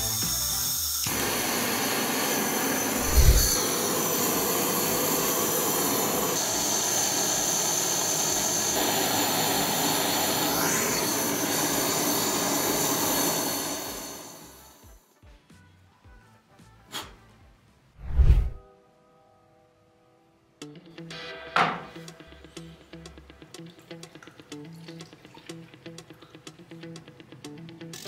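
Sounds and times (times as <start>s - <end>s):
gas torch hissing: 0.0s - 14.9s.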